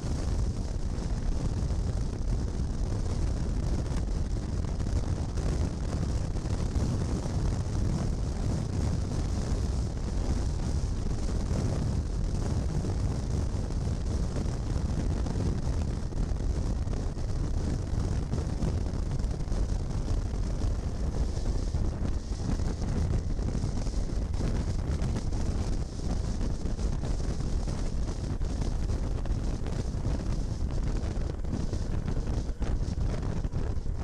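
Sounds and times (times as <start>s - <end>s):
wind rumble on microphone: 0.0s - 34.0s
road noise: 18.0s - 34.0s.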